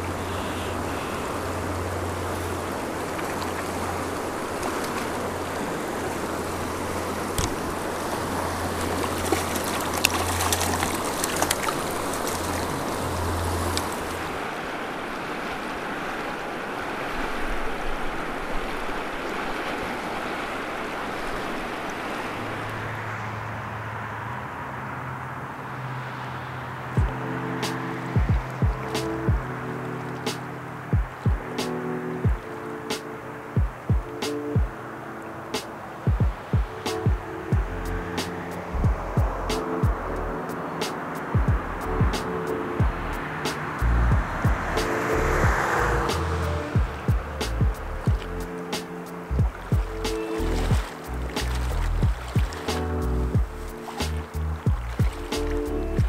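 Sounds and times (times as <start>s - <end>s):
sharp water splashes: 0.0s - 23.4s, 42.1s - 56.0s
river rushing over rocks: 0.0s - 56.0s.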